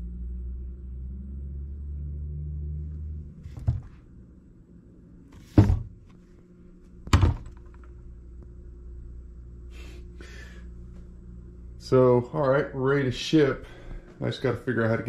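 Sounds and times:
low steady hum: 0.0s - 15.0s
loud thunks: 3.5s - 4.0s, 5.4s - 6.0s, 7.1s - 7.6s.

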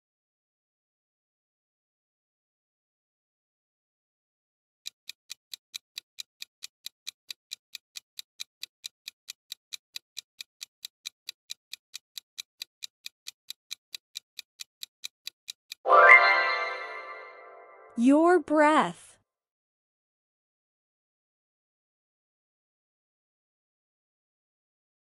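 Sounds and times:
clock ticking: 4.8s - 15.8s.

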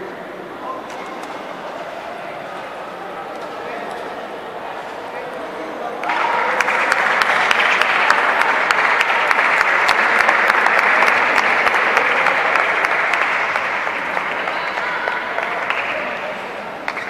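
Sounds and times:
people clapping: 5.9s - 17.0s.

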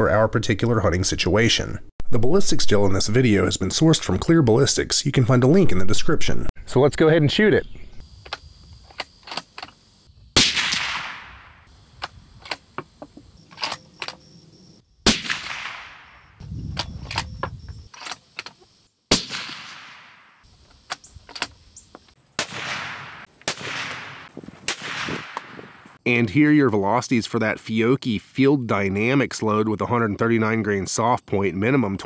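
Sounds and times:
suppressed rifle shots echoing: 10.4s - 11.7s, 15.1s - 16.4s, 19.1s - 20.4s, 22.4s - 26.0s.

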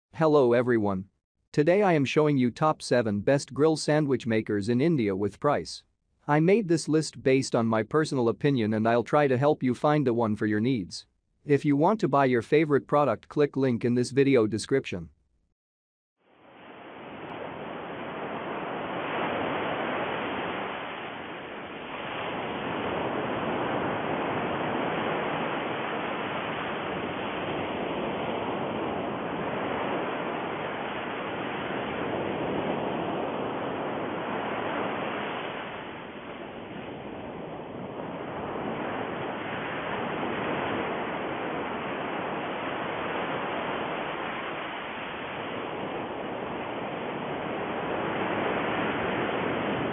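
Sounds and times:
steady rushing noise: 16.3s - 49.9s.

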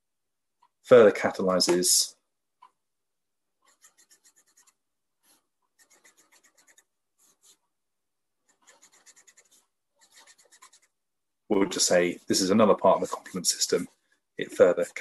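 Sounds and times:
felt-tip pen on paper: 3.6s - 7.6s, 8.4s - 11.0s.

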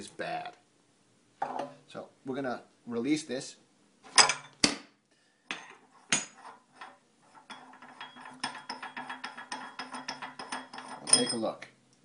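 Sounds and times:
metal parts clacking: 5.5s - 11.5s.

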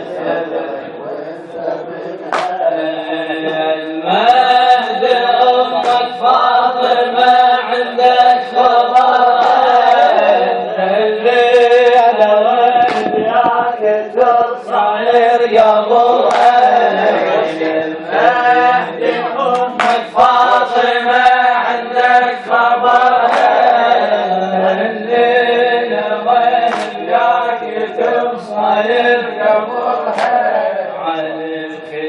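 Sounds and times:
person chanting a mourning elegy: 0.0s - 32.0s
sharp knocks or claps: 2.3s - 2.6s, 5.8s - 6.1s, 12.7s - 13.8s, 16.2s - 16.8s, 19.5s - 20.2s, 23.2s - 23.8s, 26.6s - 27.1s, 30.1s - 30.4s.

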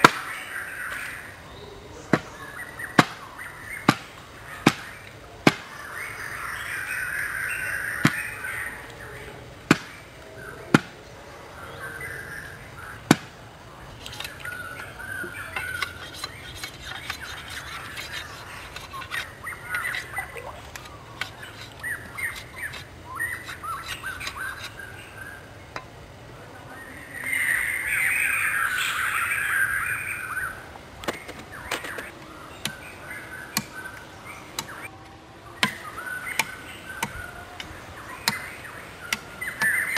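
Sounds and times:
birds chirping: 0.0s - 39.9s
knife chopping bamboo: 3.9s - 5.7s, 20.7s - 24.7s.

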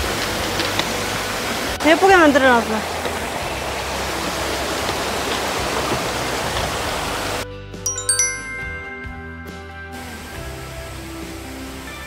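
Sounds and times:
mountain stream rushing: 0.4s - 7.4s
music with high ringing notes: 7.9s - 11.0s.

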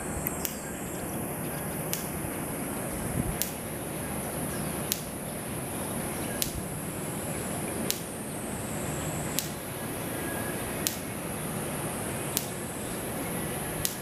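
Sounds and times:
high-pitched drone: 0.0s - 14.0s
sharp clicks: 0.2s - 0.7s, 1.8s - 2.2s, 3.3s - 3.7s, 4.8s - 5.2s, 6.3s - 6.7s, 7.8s - 8.2s, 9.3s - 9.7s, 10.8s - 11.1s, 12.3s - 12.7s, 13.8s - 14.0s.

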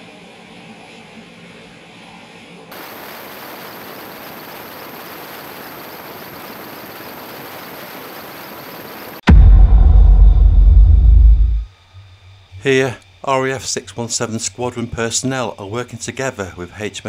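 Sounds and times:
steady rushing noise: 9.3s - 11.7s
faint low hum: 9.3s - 13.3s.

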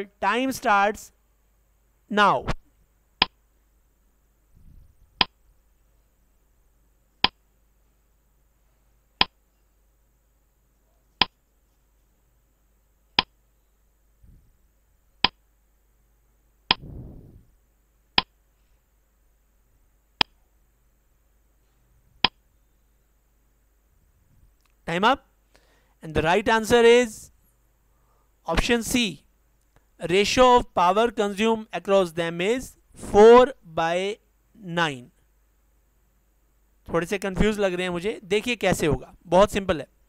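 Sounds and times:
brief low noise: 16.7s - 17.5s.

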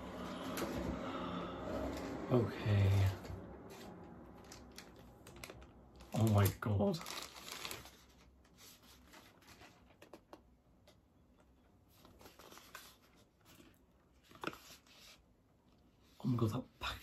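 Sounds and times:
cardboard box and plastic bag rustling: 1.7s - 10.0s.

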